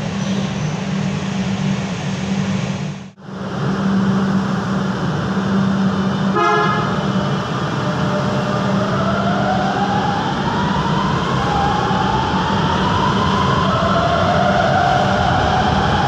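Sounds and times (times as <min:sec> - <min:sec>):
metro train humming: 0:00.0 - 0:16.0
rising inverter whine: 0:00.0 - 0:16.0
train horn toot: 0:06.2 - 0:07.4.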